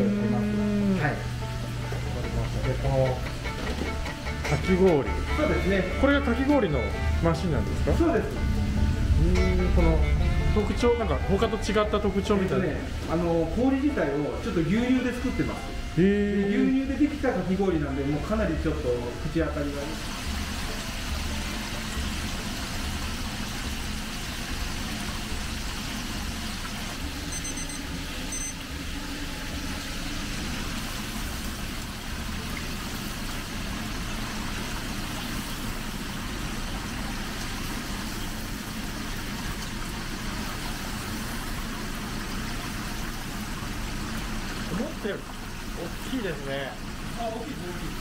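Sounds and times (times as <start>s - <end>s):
low rumbling hum: 0.0s - 28.5s
oil bubbling and sizzling: 0.0s - 48.0s.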